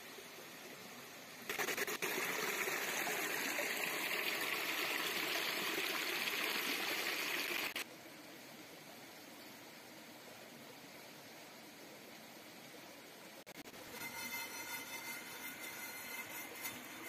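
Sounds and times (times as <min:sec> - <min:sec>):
faint steady hiss: 0:00.0 - 0:17.0
stream water rushing over rocks: 0:01.4 - 0:07.9.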